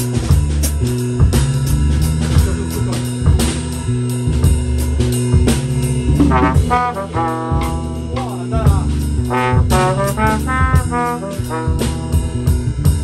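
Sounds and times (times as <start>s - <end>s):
drums: 0.0s - 13.0s
electric bass guitar: 0.0s - 13.0s
brass instrument solo: 6.1s - 13.0s.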